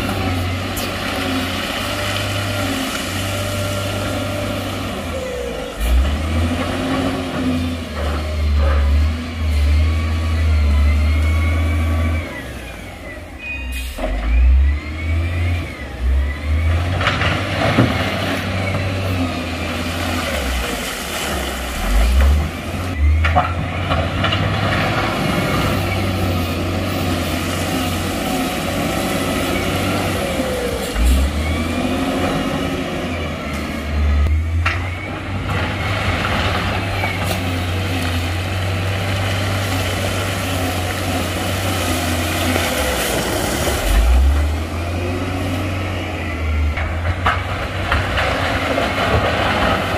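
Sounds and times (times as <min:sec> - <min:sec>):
diesel machinery engine rumble: 0:00.0 - 0:49.9.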